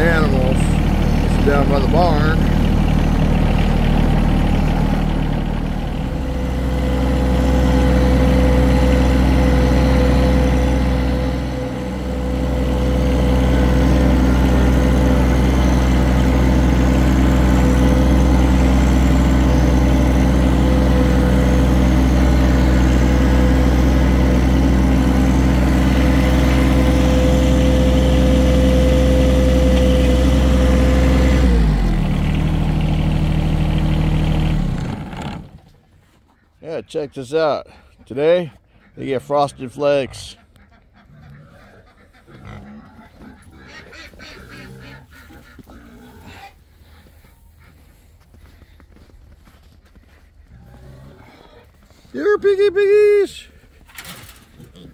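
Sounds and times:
tractor engine running: 0.0s - 36.0s.

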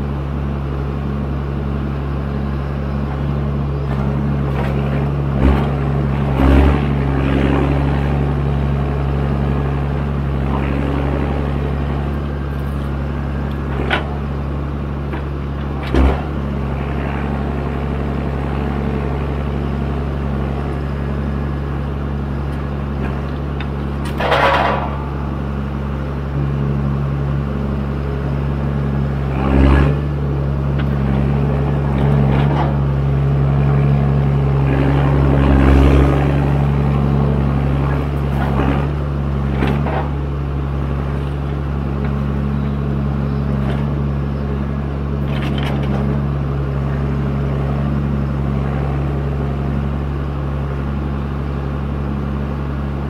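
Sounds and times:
diesel engine running under load: 0.0s - 53.0s
knocks and clatters: 23.0s - 25.2s.

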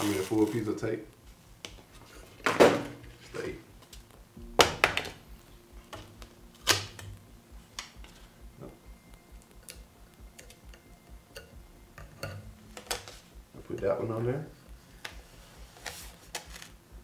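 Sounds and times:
tape ripping off roll: 0.0s - 0.8s, 6.0s - 7.2s, 15.0s - 16.8s
faint ticks and crackles: 0.0s - 2.4s, 3.1s - 4.5s.

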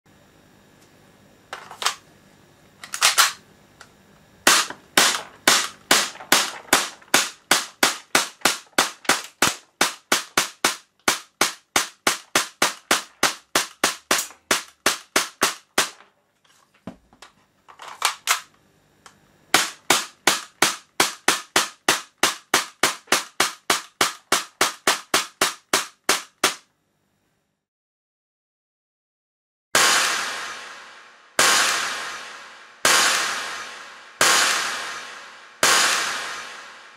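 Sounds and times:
airsoft pistol firing: 2.9s - 3.4s, 4.4s - 16.0s, 19.5s - 26.6s, 29.8s - 36.9s.

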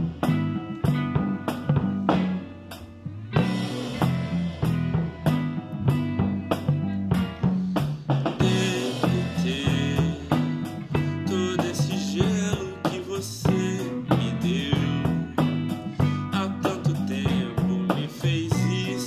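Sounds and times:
drum kit with cymbals: 0.0s - 19.0s
electric bass line: 0.0s - 19.0s
electric guitar: 0.0s - 19.0s
person singing lead: 8.4s - 19.0s.

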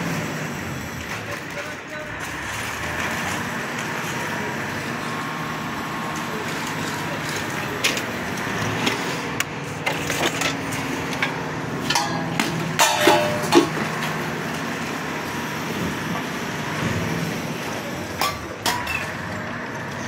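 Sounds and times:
heavy machine engine running: 0.0s - 20.0s
sharp knocks and clanks: 8.8s - 14.3s.

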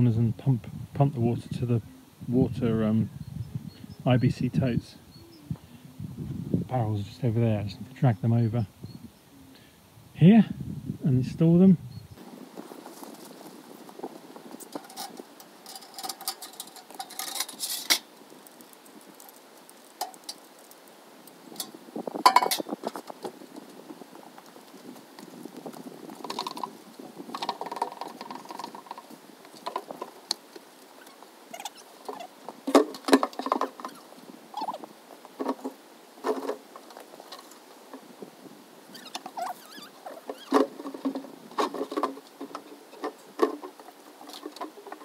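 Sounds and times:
plastic barrels knocking and bumping: 32.6s - 33.9s, 40.3s - 45.0s.

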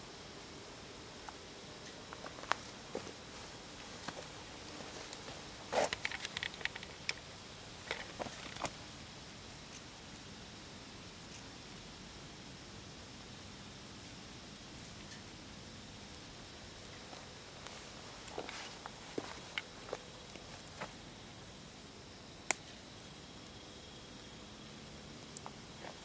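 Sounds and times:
night insects chirping: 0.0s - 26.0s
steady hiss: 0.0s - 26.0s
footsteps through leaves and twigs: 2.2s - 5.9s, 17.0s - 21.0s.

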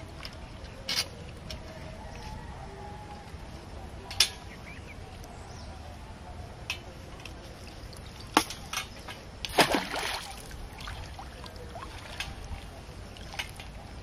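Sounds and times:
water sloshing: 7.2s - 14.0s
net splashing in pond water: 9.4s - 12.4s.

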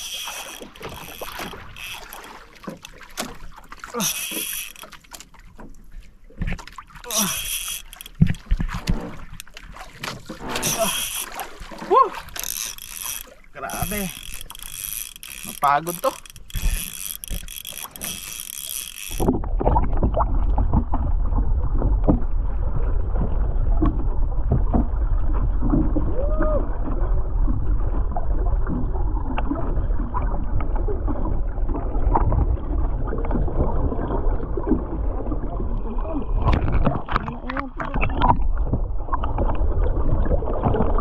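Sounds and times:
fishing reel ticking: 0.0s - 3.0s, 3.9s - 5.2s, 7.1s - 8.4s, 10.6s - 11.4s, 12.3s - 19.3s
boat knocks and creaks: 0.0s - 26.1s, 36.3s - 39.7s
rumble of wind and water: 0.0s - 41.0s.

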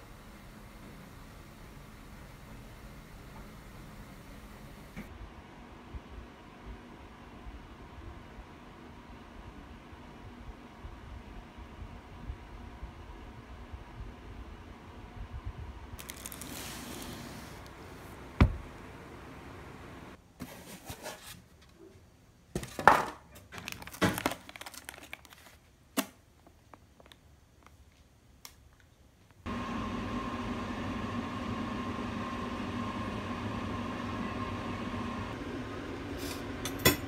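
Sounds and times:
plastic packaging crinkling: 16.0s - 17.8s, 23.4s - 25.8s.

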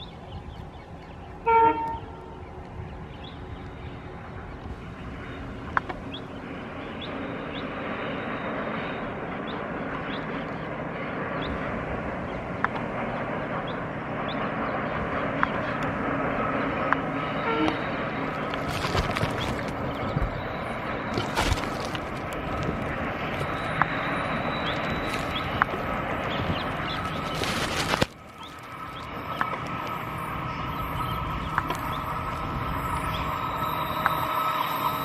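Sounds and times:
locomotive engine: 0.0s - 35.0s
train running rumble: 0.0s - 35.0s
locomotive horn blast: 1.4s - 2.3s, 17.2s - 18.3s.

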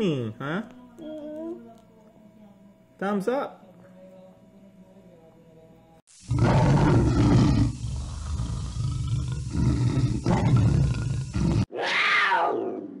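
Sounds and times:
big cat growling: 6.3s - 13.0s
big cat roar: 6.3s - 13.0s.

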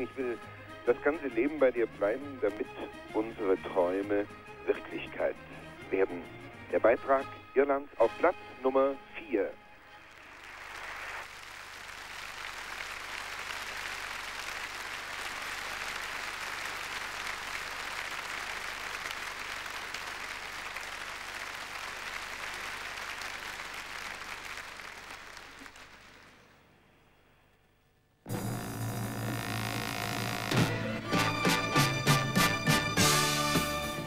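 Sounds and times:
audience applauding: 10.0s - 26.6s.

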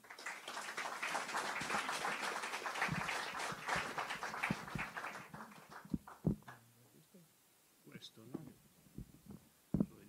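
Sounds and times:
audience applauding: 0.0s - 6.6s
low thumps: 5.9s - 6.5s, 8.4s - 10.0s.

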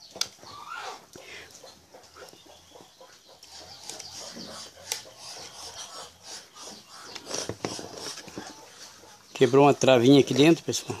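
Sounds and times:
plastic housing rubbing and scraping: 7.1s - 8.6s.

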